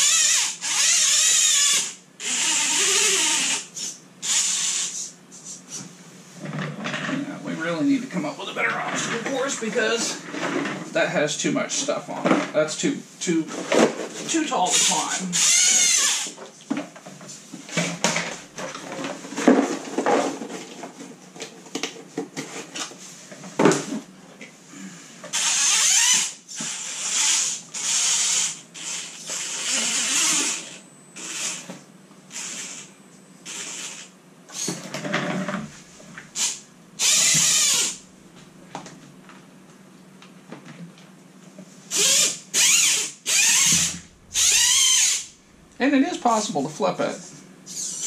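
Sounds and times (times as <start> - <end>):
electric motor whining: 0.0 - 5.1, 14.7 - 16.4, 25.3 - 31.7, 36.4 - 38.1, 41.9 - 45.8.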